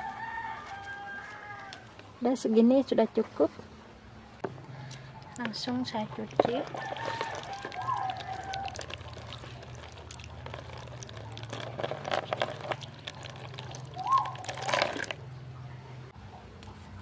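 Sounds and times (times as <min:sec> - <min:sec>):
water splashing into plastic basin: 0:06.2 - 0:15.2.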